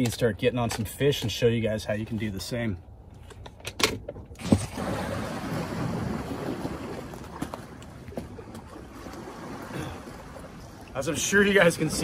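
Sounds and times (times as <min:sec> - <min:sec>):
light wind: 0:00.0 - 0:12.0
water moving against rocks: 0:04.4 - 0:12.0.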